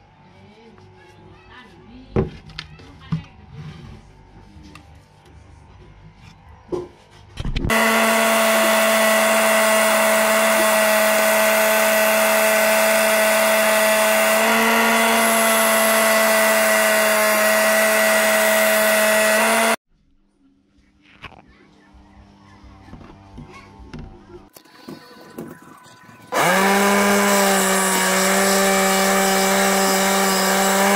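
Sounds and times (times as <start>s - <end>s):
saw cutting plastic sheet: 7.7s - 19.8s, 26.3s - 30.9s.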